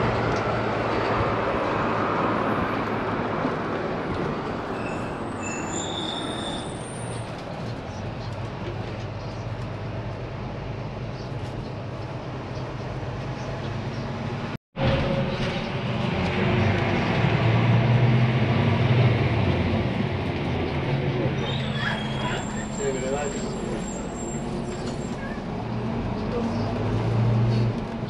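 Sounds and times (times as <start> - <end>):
brief high squeals: 4.7 - 7.2, 21.4 - 25.4
moving vehicle running noise: 6.9 - 28.0.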